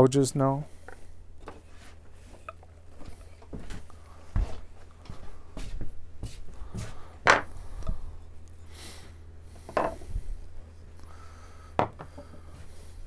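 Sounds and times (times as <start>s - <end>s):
tools knocking on wooden bench: 9.7s - 10.0s, 11.8s - 12.4s.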